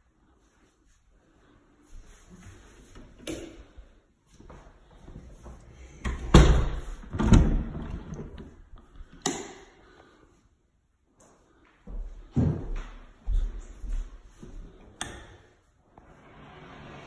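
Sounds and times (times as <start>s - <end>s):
door opening and closing: 6.0s - 8.6s.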